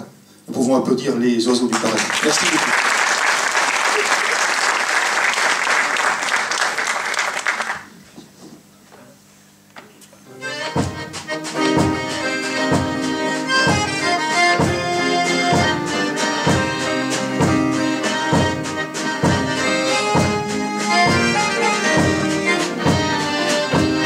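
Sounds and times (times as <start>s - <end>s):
accordion held notes: 10.2s - 24.0s
steady drum beat: 10.5s - 24.0s.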